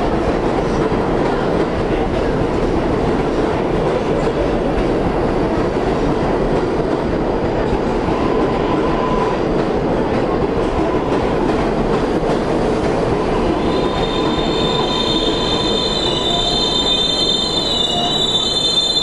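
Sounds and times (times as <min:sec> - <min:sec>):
train wheels rumbling on rail: 0:00.0 - 0:19.0
high-pitched brake squealing: 0:13.6 - 0:19.0.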